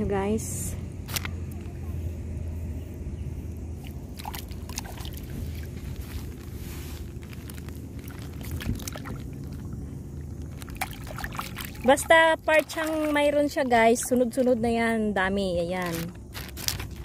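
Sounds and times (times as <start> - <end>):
steady low rumble: 0.0 - 17.0
small splashes and clicks: 3.8 - 5.7, 7.2 - 9.7, 10.3 - 14.7
hand sloshing through water: 3.8 - 14.6.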